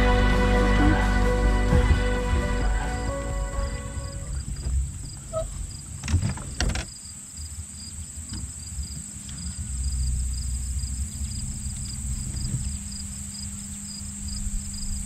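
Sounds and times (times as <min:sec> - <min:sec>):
wind rumbling on microphone: 0:04.0 - 0:06.9, 0:08.3 - 0:15.0.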